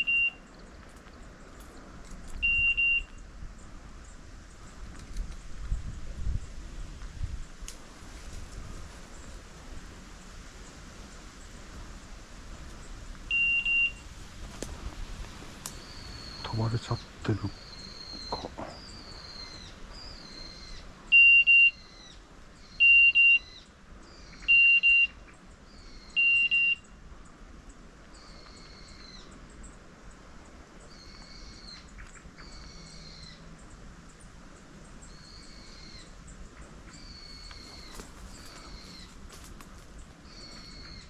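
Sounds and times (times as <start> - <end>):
loud electronic beeps: 0.0 - 0.4, 2.4 - 3.1, 13.3 - 14.0, 21.2 - 21.8, 24.5 - 25.2, 26.2 - 26.8.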